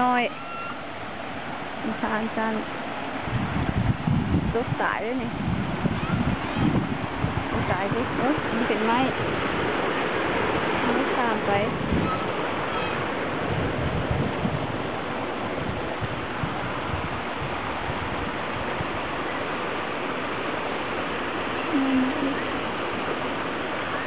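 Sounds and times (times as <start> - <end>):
stream water rushing over rocks: 0.0 - 24.0
brief voice: 21.7 - 22.5.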